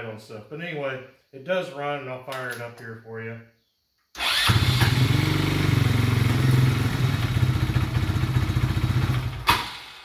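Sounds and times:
engine running down: 4.3s - 10.0s
atv engine idling: 4.5s - 9.5s.

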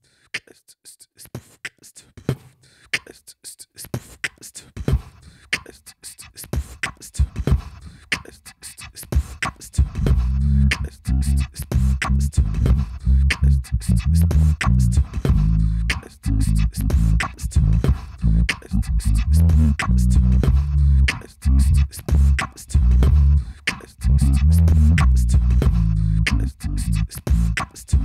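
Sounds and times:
beatboxing into microphone: 0.1s - 28.0s
deep pulsing bass line: 10.0s - 28.0s.

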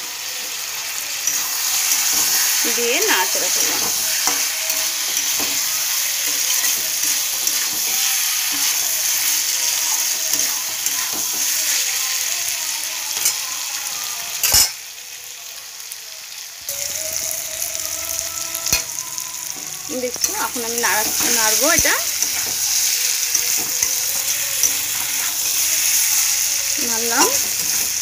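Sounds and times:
vegetables sizzling in oil: 0.0s - 28.0s
spatula scraping pan: 1.2s - 12.2s, 18.5s - 28.0s.

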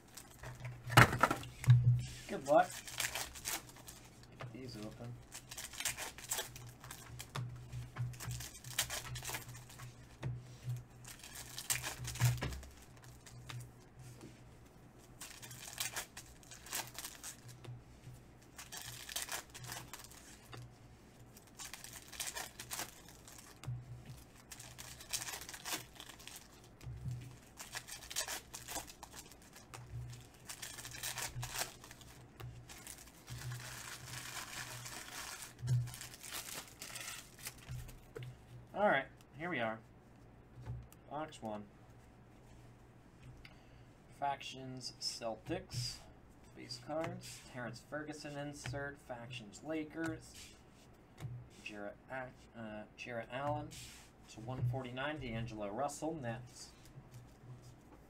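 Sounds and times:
foil wrappers tearing and crinkling: 2.3s - 7.4s, 8.1s - 9.9s, 11.0s - 13.6s, 15.2s - 17.6s, 18.5s - 20.5s, 21.4s - 38.0s.

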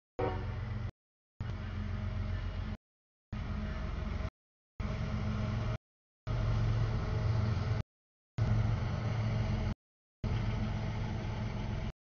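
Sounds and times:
freight train rumbling past: 0.2s - 2.8s, 3.4s - 7.8s.

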